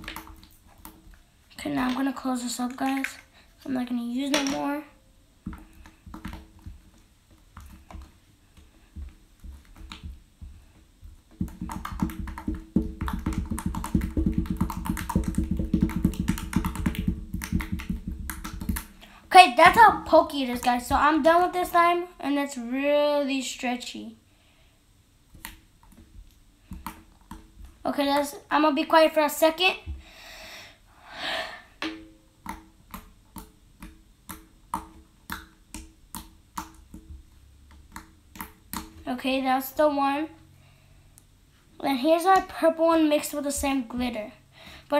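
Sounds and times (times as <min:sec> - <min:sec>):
slime clicking and popping: 0:11.4 - 0:18.9, 0:32.4 - 0:39.0
slime squished with fingers: 0:32.4 - 0:39.0.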